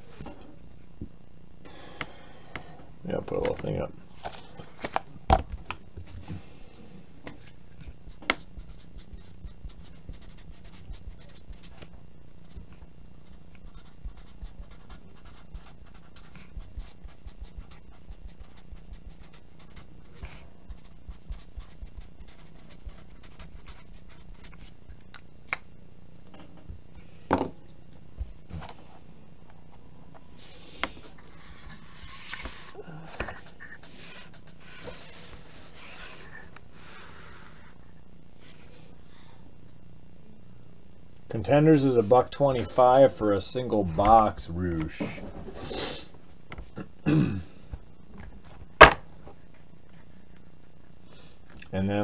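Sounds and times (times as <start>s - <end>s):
pen scratching on paper: 7.8s - 24.8s.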